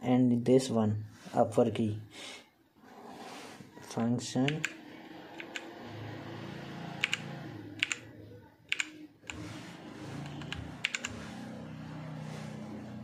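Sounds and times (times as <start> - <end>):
mechanical keyboard clicks: 4.5 - 4.8, 5.4 - 5.7, 7.0 - 7.2, 7.8 - 8.0, 8.7 - 9.4, 10.4 - 11.1.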